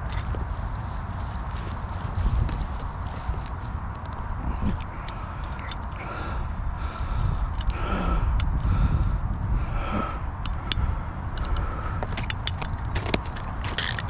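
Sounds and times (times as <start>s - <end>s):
wind noise on microphone: 0.0s - 14.0s
metallic clicks of pliers: 4.8s - 7.8s, 10.1s - 14.0s.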